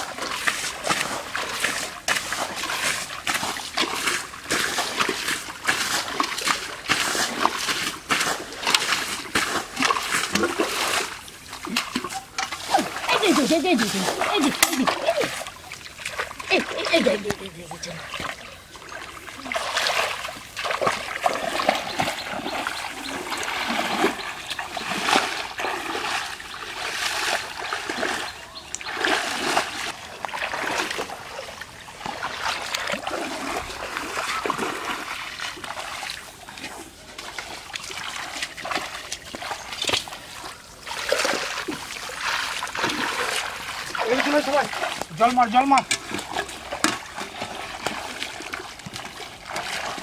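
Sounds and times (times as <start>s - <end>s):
hands splashing in muddy water: 0.0s - 50.0s.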